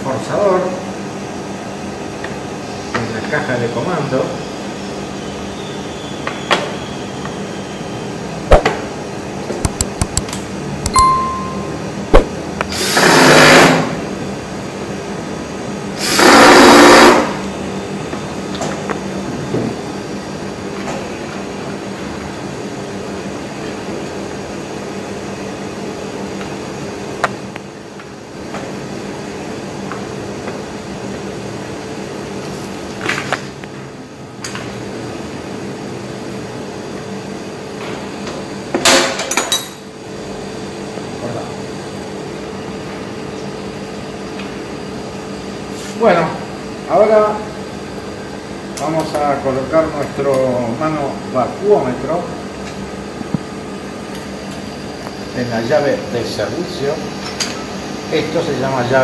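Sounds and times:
steady hum: 0:08.1 - 0:32.9
loud rasping bursts: 0:16.1 - 0:17.4.

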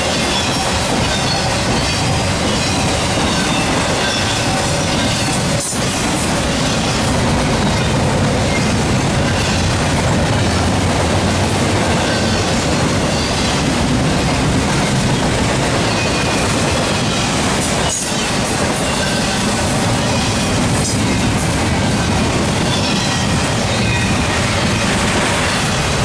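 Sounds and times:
freight train wheels rumbling: 0:00.0 - 0:26.0
wheel squeal: 0:00.2 - 0:05.4.

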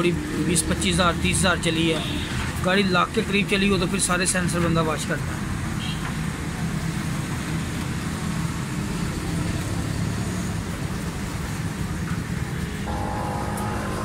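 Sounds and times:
road traffic rumble: 0:00.0 - 0:14.0
steady higher tone: 0:12.9 - 0:14.0.

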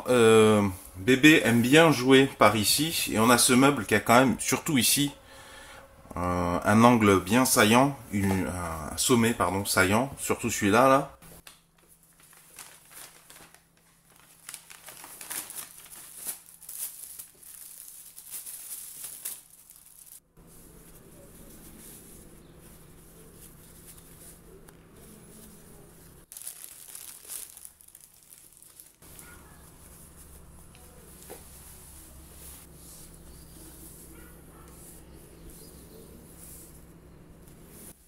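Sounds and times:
handling foam packaging: 0:11.4 - 0:38.0
paper bag rustling: 0:11.8 - 0:36.9.

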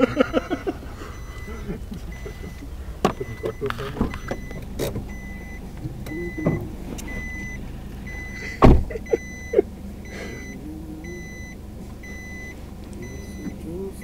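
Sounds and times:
car warning chime beeping: 0:00.0 - 0:14.0
heavy thump: 0:01.1 - 0:09.1.

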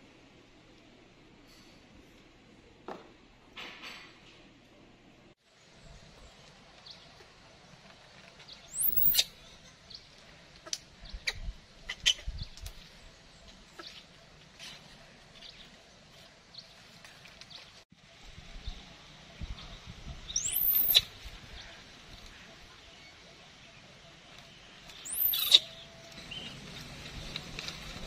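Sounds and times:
baby monkey squealing: 0:08.7 - 0:09.4, 0:20.4 - 0:21.1, 0:25.0 - 0:25.8.

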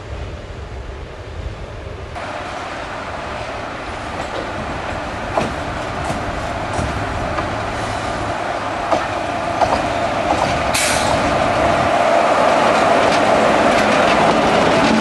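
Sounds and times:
electric locomotive running hum: 0:00.0 - 0:15.0
train wheels clicking over rail joints: 0:03.1 - 0:15.0.

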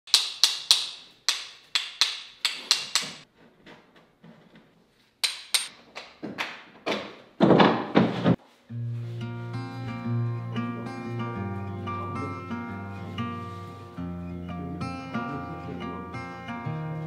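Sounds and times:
sharp knocks and taps: 0:00.1 - 0:03.2
acoustic guitar music: 0:08.7 - 0:17.0.

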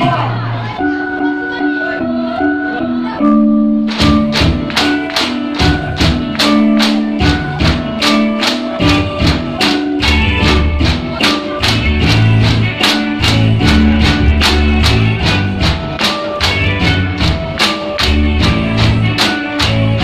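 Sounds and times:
bamboo clacking beat: 0:03.9 - 0:20.0
deep bass: 0:08.8 - 0:20.0.

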